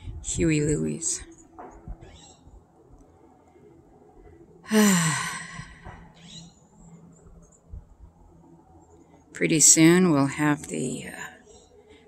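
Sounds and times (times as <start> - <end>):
person sighing: 4.6 - 5.9.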